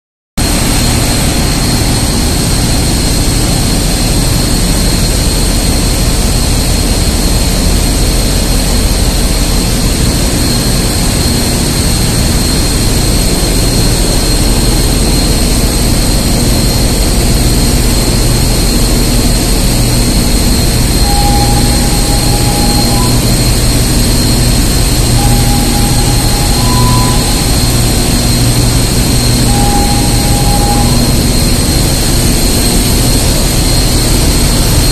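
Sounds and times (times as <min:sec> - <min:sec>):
engine room machinery rumble: 0:00.4 - 0:34.9
high whine: 0:00.4 - 0:34.9
short repeating tone: 0:20.9 - 0:32.0.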